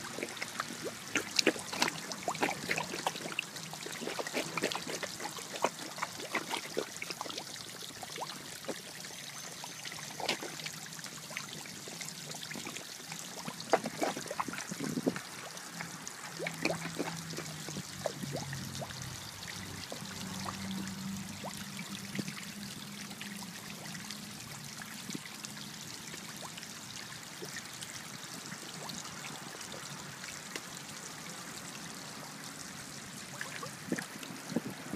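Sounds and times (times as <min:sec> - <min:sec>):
fish splashing and popping: 0:00.0 - 0:24.0, 0:33.3 - 0:34.9
pond water trickling: 0:00.0 - 0:34.9.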